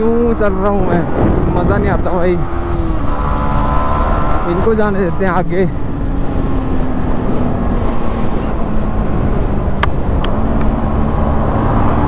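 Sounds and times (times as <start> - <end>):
wind rush: 0.0 - 4.4.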